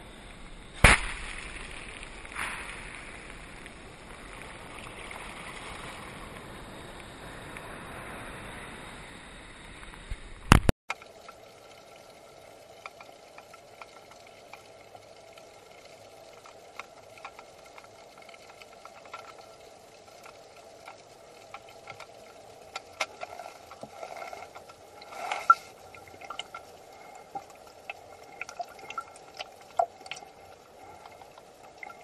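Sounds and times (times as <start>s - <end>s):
faint underwater hum: 0.0s - 32.0s
short loud crackle: 0.8s - 3.2s
seawater rushing and fizzing: 0.8s - 9.4s
small underwater clicks: 9.9s - 32.0s.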